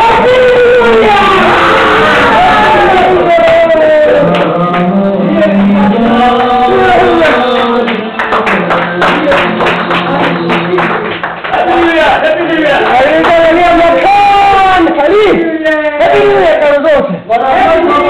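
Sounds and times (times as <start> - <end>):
man singing: 2.5 - 10.8
sharp rhythmic beats: 3.2 - 13.8.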